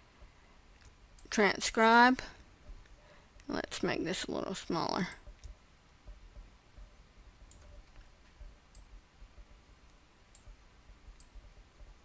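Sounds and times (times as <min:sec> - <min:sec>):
computer mouse clicks: 0:05.1 - 0:12.0.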